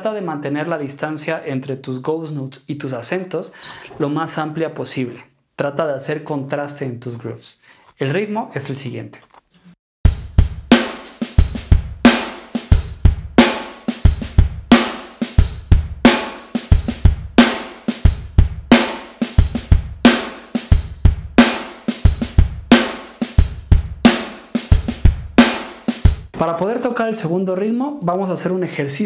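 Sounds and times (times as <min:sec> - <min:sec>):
electronic drum kit groove: 0:10.1 - 0:26.4.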